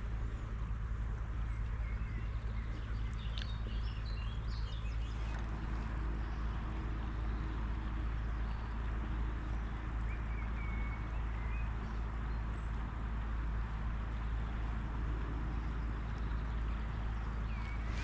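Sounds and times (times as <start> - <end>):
wind rumble on microphone: 0.0 - 18.0
river water rushing: 16.9 - 18.0.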